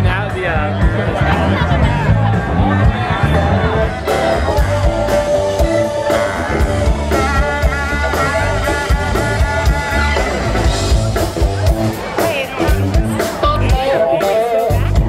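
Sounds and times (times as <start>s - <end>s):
drums steady beat: 0.0s - 15.0s
electric guitar: 0.0s - 15.0s
live rock band: 0.0s - 15.0s
baritone saxophone: 3.4s - 11.8s.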